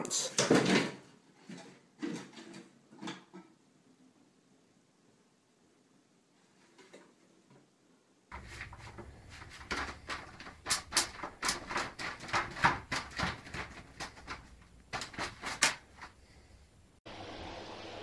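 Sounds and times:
paper rustling: 8.3s - 16.5s.

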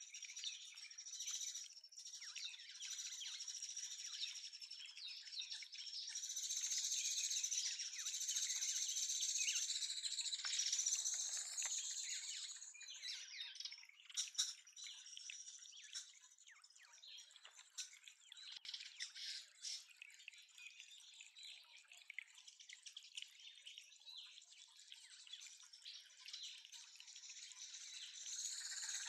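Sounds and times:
water dripping and trickling: 0.0s - 29.0s.

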